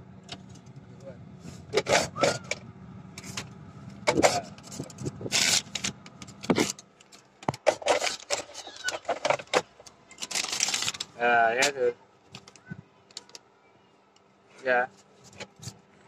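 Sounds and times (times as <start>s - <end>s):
blower fan hum: 0.0s - 13.4s
paper rustling in air vent: 4.1s - 6.8s, 10.2s - 11.2s.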